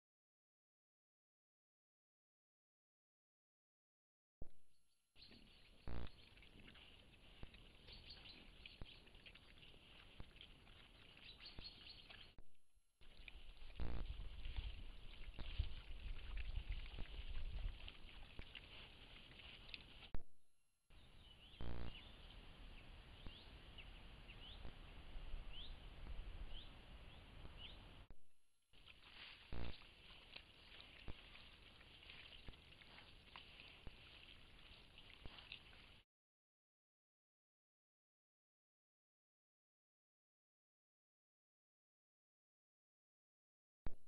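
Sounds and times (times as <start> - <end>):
bird chirping: 5.2 - 12.4, 21.0 - 28.0
distant birds chirping: 21.0 - 28.0.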